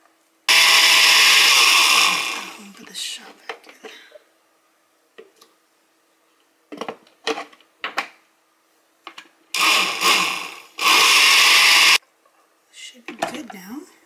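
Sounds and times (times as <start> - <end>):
blender running: 0.5 - 2.7, 9.6 - 12.0.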